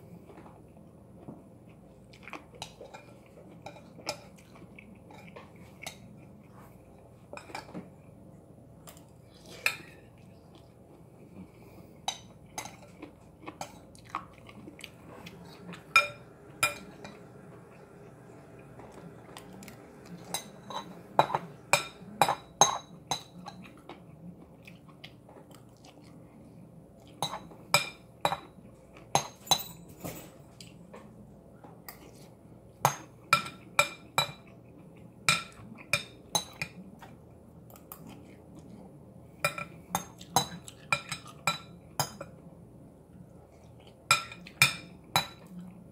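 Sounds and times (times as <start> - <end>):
quiet chewing: 0.0 - 22.2, 23.2 - 27.7, 36.6 - 41.4, 43.1 - 44.6
metal utensil clinking against bowl: 15.8 - 17.3.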